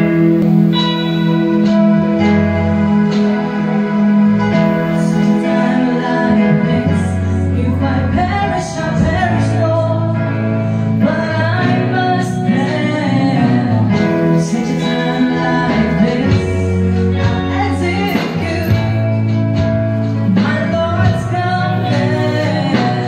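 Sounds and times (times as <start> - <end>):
amplified instrumental accompaniment: 0.0 - 23.0
woman singing gospel song: 5.0 - 19.4, 20.3 - 23.0.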